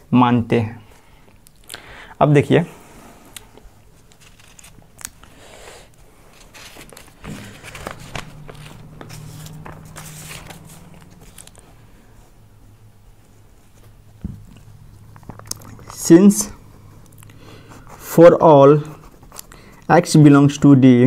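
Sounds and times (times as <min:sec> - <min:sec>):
paper rustling and crinkling: 0:04.0 - 0:05.3, 0:06.2 - 0:12.3.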